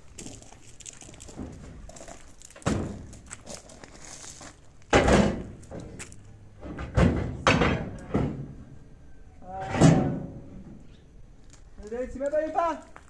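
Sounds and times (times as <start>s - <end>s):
metal tailgate thunks and clunks: 2.6s - 3.2s, 4.9s - 8.7s, 9.6s - 10.8s.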